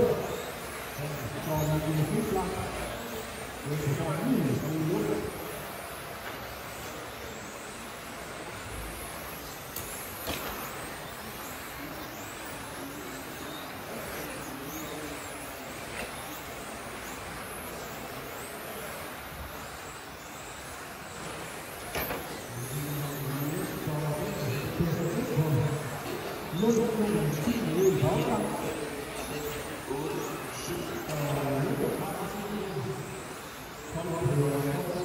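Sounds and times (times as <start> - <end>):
rc car motors whining: 0.0 - 35.0
steady background hiss: 0.0 - 35.0.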